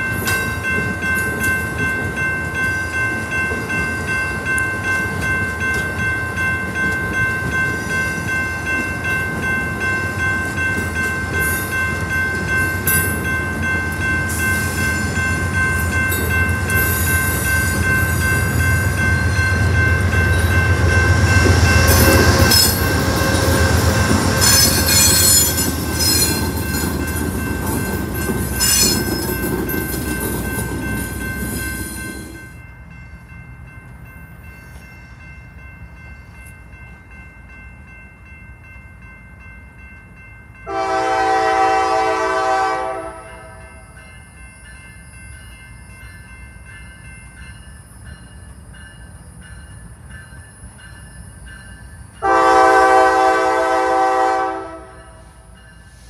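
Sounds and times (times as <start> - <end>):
train wheels rumbling: 0.0 - 34.1
locomotive horn chord: 40.7 - 43.6, 52.2 - 55.2.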